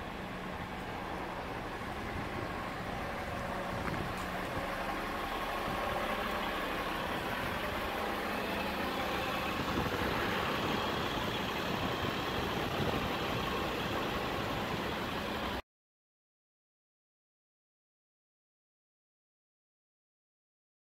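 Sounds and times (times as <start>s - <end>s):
diesel truck engine idling: 0.0s - 15.6s.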